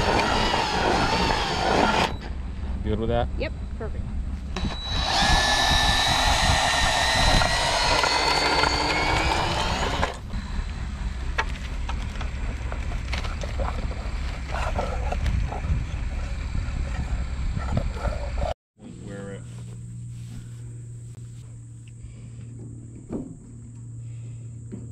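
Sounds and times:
electric drill whining: 0:00.0 - 0:02.3, 0:04.6 - 0:11.2
low steady rumble: 0:02.2 - 0:24.9.

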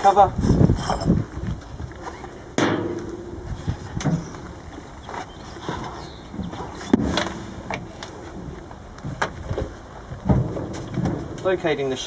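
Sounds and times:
metal knocks and clanks: 0:02.6 - 0:11.8.

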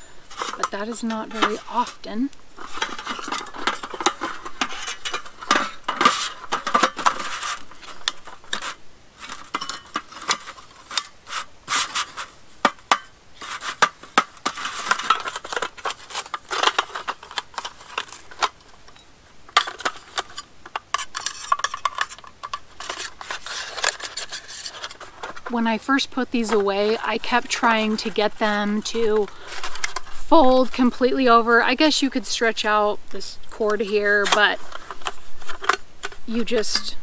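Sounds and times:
metal table parts clinking and scraping: 0:00.3 - 0:02.0, 0:02.6 - 0:12.3, 0:12.9 - 0:25.5.

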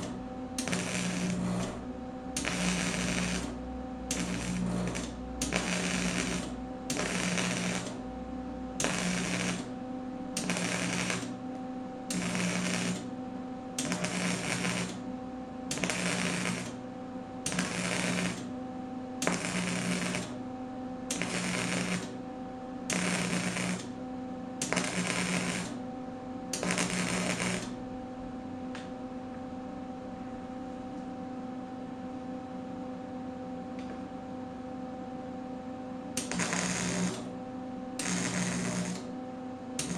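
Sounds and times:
welder arc crackling: 0:00.0 - 0:01.8, 0:02.4 - 0:08.0, 0:08.8 - 0:09.7, 0:10.4 - 0:11.4, 0:12.1 - 0:13.1, 0:13.8 - 0:15.0, 0:15.7 - 0:16.8, 0:17.4 - 0:18.5, 0:19.2 - 0:20.4, 0:21.1 - 0:22.2, 0:22.9 - 0:23.9, 0:24.6 - 0:25.8, 0:26.6 - 0:27.8, 0:36.2 - 0:37.3, 0:38.0 - 0:39.1
steady hum: 0:00.0 - 0:39.9.

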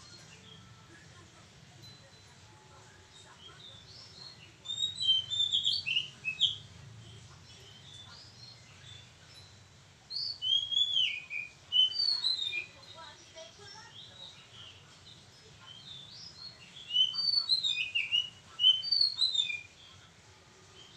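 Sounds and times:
bird whistled song: 0:03.9 - 0:06.7, 0:10.1 - 0:13.0, 0:15.7 - 0:19.8.

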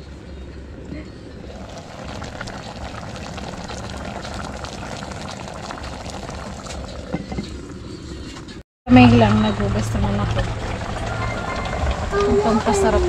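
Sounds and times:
fish stew bubbling in pot: 0:01.5 - 0:08.5, 0:09.9 - 0:12.9.

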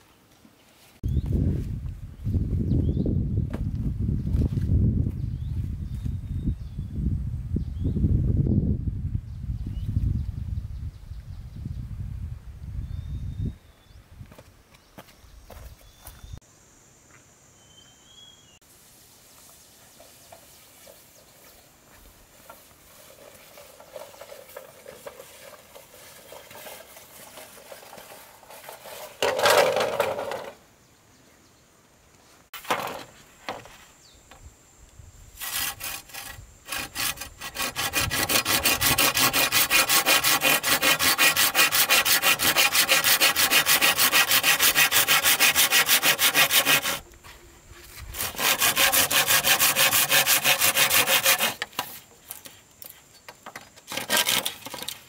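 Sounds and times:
handling noises: 0:20.0 - 0:30.6
loud scrape: 0:22.4 - 0:30.5, 0:35.4 - 0:47.0, 0:47.8 - 0:52.0, 0:53.9 - 0:55.0
hand saw cutting wood: 0:22.5 - 0:30.5, 0:35.4 - 0:47.0, 0:48.0 - 0:52.4, 0:53.9 - 0:55.0.

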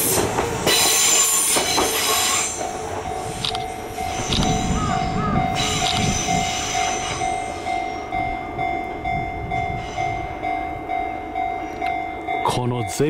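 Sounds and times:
electric train passing: 0:00.0 - 0:13.0
level crossing bell ringing: 0:03.0 - 0:13.0.

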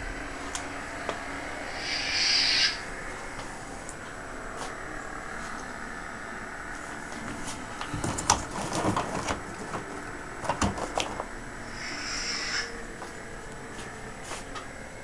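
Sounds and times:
plastic wrapping crinkling: 0:07.1 - 0:11.4.

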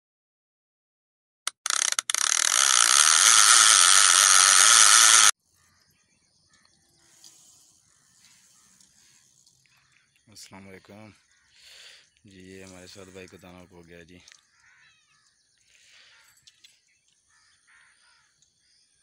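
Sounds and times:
sharp clicks: 0:01.5 - 0:05.3
faint outdoor ambience: 0:05.4 - 0:19.0.

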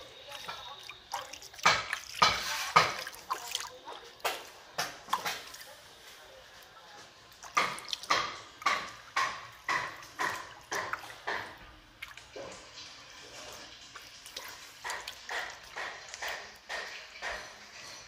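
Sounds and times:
shallow water splashing: 0:00.0 - 0:05.8.

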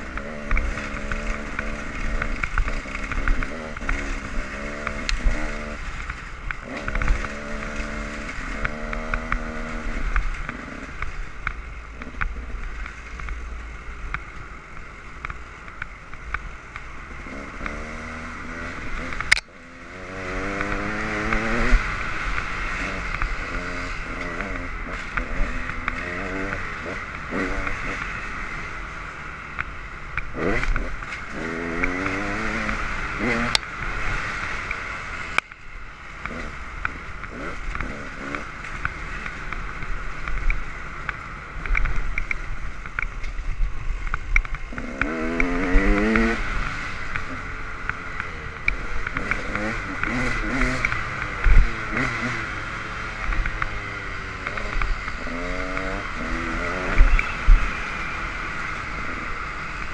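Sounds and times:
dirt bike engines revving: 0:00.0 - 0:59.9
sharp click: 0:19.1 - 0:19.5.

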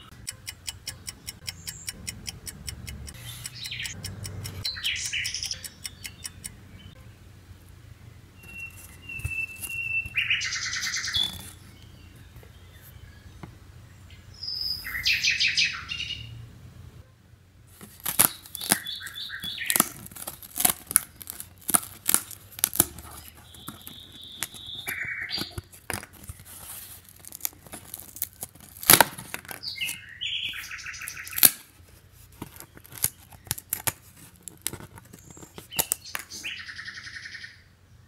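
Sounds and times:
squeaky scrapes of pieces: 0:08.4 - 0:11.7, 0:17.8 - 0:36.6
cardboard pieces snapping and tearing: 0:17.8 - 0:30.0, 0:31.1 - 0:31.8, 0:32.4 - 0:36.5.

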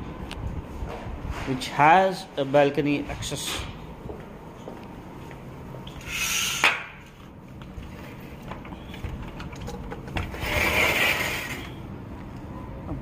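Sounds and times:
sliding door rubbing along track: 0:06.0 - 0:06.7, 0:10.0 - 0:11.8.

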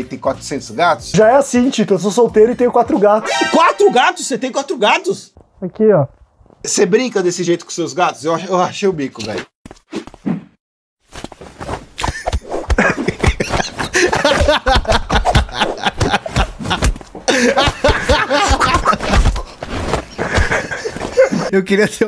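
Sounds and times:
men laughing hard: 0:03.2 - 0:04.0, 0:12.1 - 0:21.5
comic sound effects: 0:03.2 - 0:04.2.

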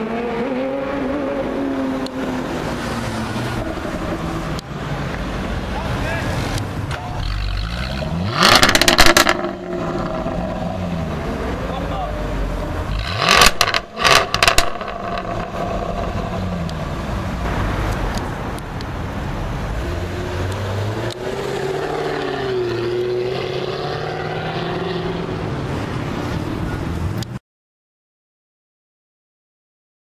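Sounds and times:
car engine pulling away: 0:00.0 - 0:26.8
car exhaust blips with crackles: 0:06.6 - 0:11.6, 0:12.8 - 0:21.3.

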